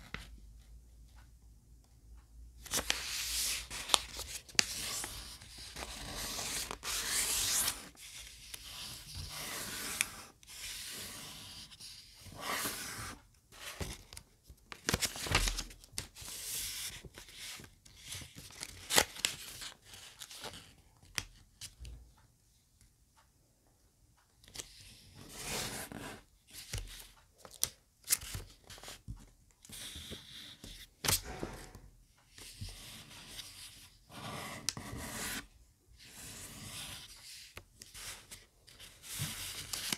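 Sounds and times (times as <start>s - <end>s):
paper rustling and crackling: 14.7s - 16.0s.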